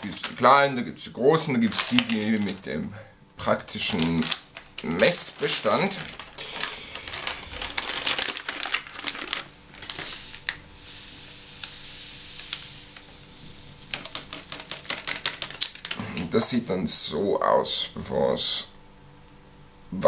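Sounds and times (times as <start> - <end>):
foil pouch crinkling and tearing: 0.0 - 0.6, 1.4 - 2.7, 3.5 - 10.6, 11.5 - 13.2, 13.8 - 16.0.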